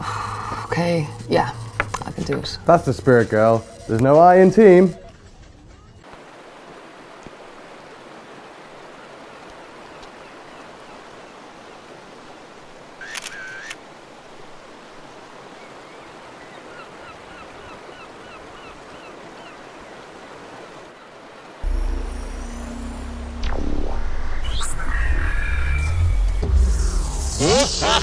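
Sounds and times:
water: 0:00.0 - 0:25.6
camera shutter click and whir: 0:13.0 - 0:13.8
breeze: 0:21.4 - 0:28.0.

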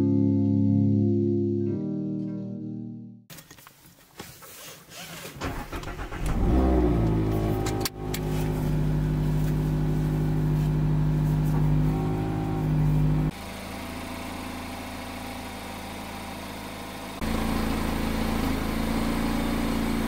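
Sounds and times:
ignition clicks: 0:05.3 - 0:09.6
car engine starting and idling: 0:05.3 - 0:20.0.

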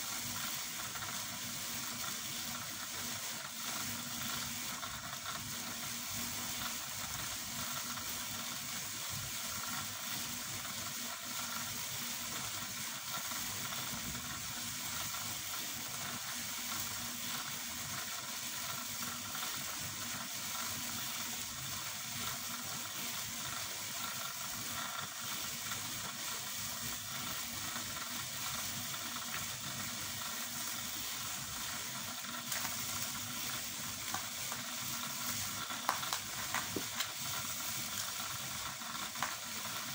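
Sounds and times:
faint crackles: 0:27.2 - 0:39.9.

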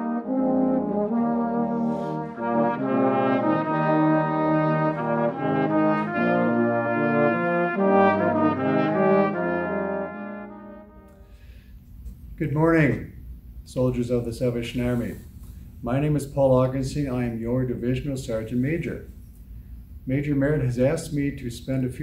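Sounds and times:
brass band playing chords: 0:00.0 - 0:11.5.

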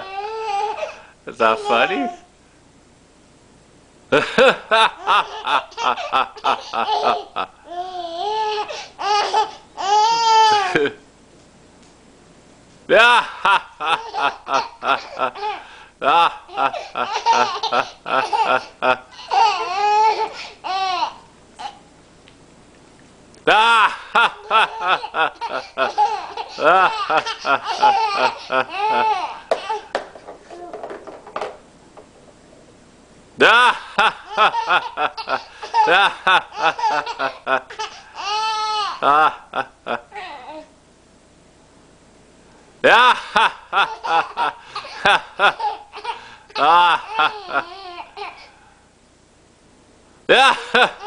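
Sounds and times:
baby laughing and squealing: 0:05.0 - 0:10.8, 0:14.0 - 0:15.6, 0:16.7 - 0:21.8, 0:23.5 - 0:29.9, 0:34.2 - 0:39.0, 0:43.9 - 0:48.5.

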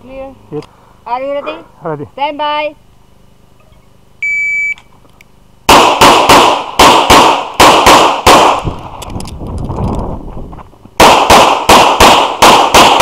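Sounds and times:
handgun shots: 0:05.7 - 0:08.7, 0:11.0 - 0:13.0.

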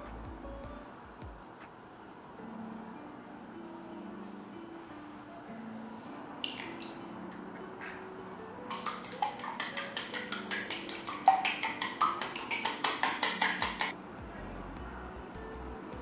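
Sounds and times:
soft background music: 0:00.0 - 0:16.0
chopsticks tapping glass bowl: 0:08.7 - 0:13.9.

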